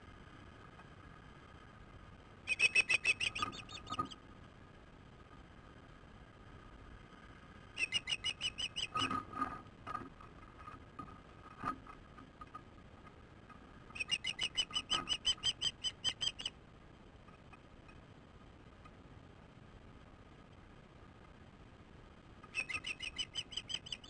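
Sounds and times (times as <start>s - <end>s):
softer lower bird calls: 2.4s - 4.2s, 7.7s - 9.2s, 13.9s - 16.6s, 22.5s - 24.0s
rapid high chirps: 2.5s - 4.0s, 7.8s - 9.0s.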